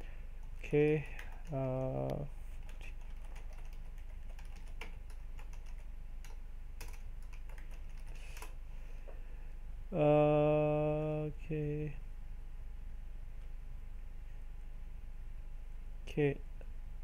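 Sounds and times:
computer keyboard typing: 0.4 - 8.6.

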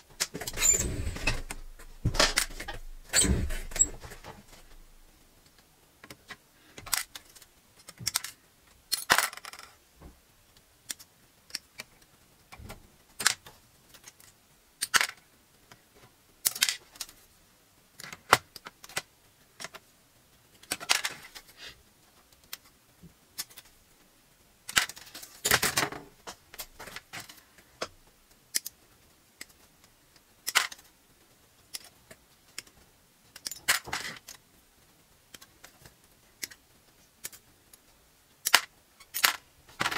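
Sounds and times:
plastic parts clattering into tub: 0.2 - 4.8
plastic frame rattling: 0.2 - 5.0.

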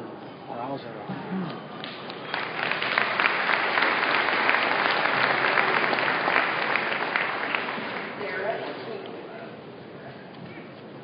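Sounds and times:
audience applauding: 1.8 - 8.9.

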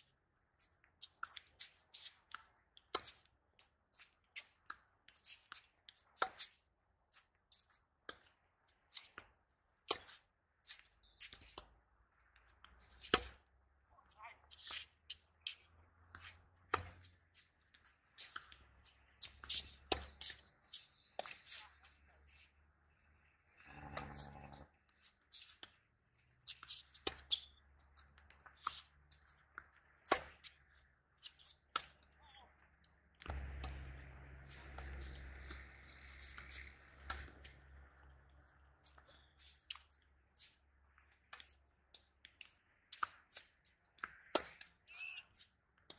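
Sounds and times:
tennis ball bouncing on court: 16.1 - 17.1, 19.2 - 20.4, 29.5 - 30.5, 33.3 - 35.6, 36.2 - 37.6.

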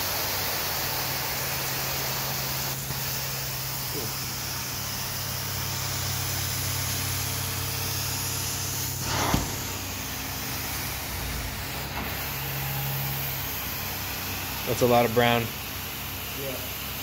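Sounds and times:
carpet extraction spray and suction hiss: 0.0 - 17.0
low machine hum: 2.7 - 17.0
whoosh ending in a thump: 9.0 - 9.8.

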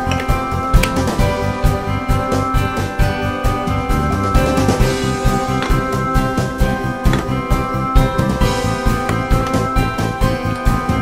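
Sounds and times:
upbeat music with drums and guitar: 0.0 - 11.0.

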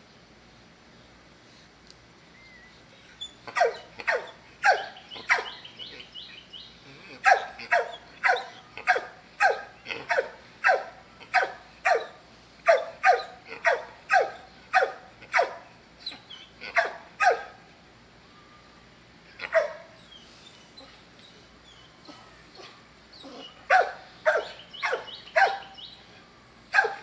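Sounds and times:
dog barking: 3.5 - 5.6, 7.2 - 15.7, 16.7 - 17.6, 19.4 - 19.9, 23.7 - 25.8, 26.7 - 27.0.

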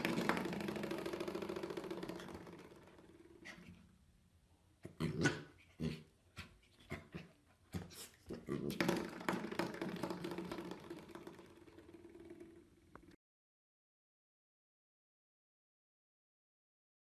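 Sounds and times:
puppy growling: 4.8 - 9.2.

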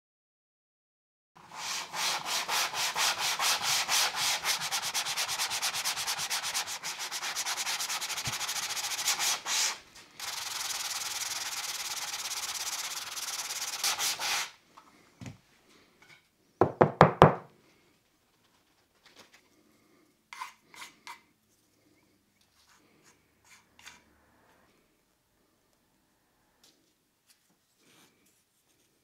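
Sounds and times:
sanding block rubbing on plywood: 1.4 - 14.5.

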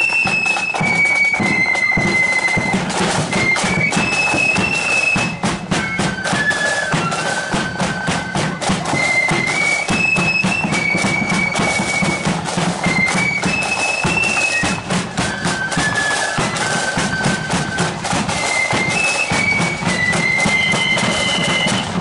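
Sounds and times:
driving drum beat: 0.0 - 22.0
flutes playing in unison: 0.0 - 22.0.

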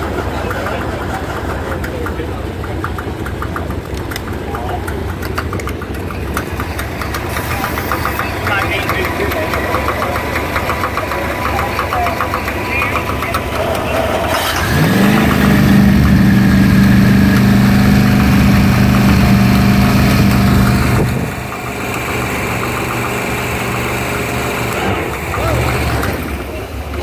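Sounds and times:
boat engine idling: 0.0 - 27.0
boat engine starter cranking: 1.2 - 16.0.

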